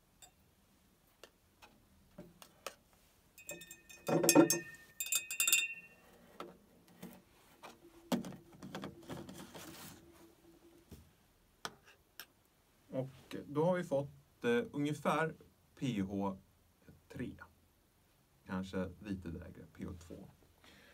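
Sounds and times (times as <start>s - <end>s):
stirring rod clinking on glass: 3.4s - 6.0s
soft scraping: 6.1s - 10.9s.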